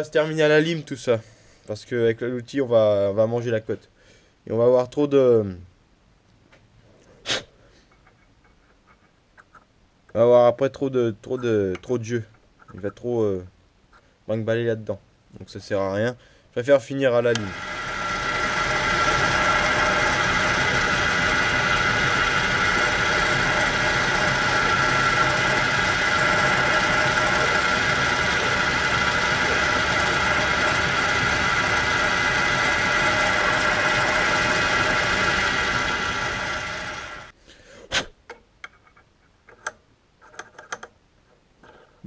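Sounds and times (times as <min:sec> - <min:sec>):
metal lathe running: 0:17.3 - 0:37.3
hand file on spinning metal: 0:17.4 - 0:37.3.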